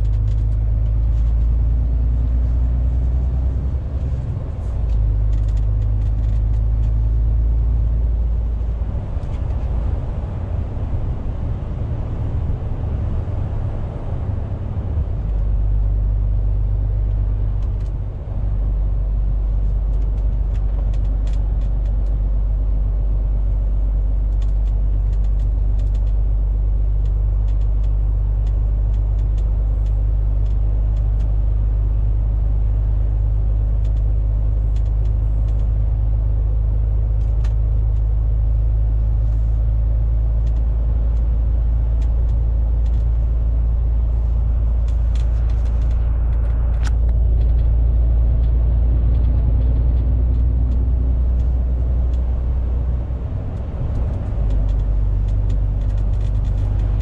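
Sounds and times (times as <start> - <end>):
road noise: 0.0 - 57.0
truck diesel engine drone: 0.0 - 57.0
faint light ticks: 40.4 - 41.4.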